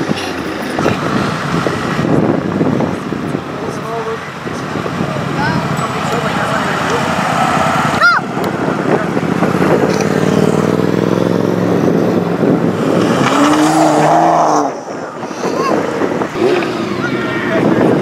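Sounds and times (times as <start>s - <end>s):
crowd hubbub: 0.0s - 18.0s
car engine passing by: 4.6s - 18.0s.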